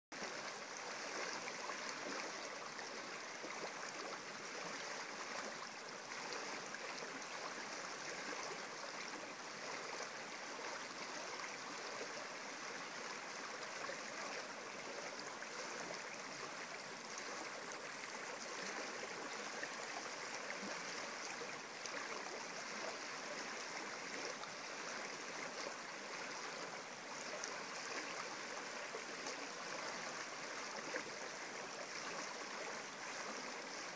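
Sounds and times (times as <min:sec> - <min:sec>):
stream running over pebbles: 0:00.1 - 0:33.9.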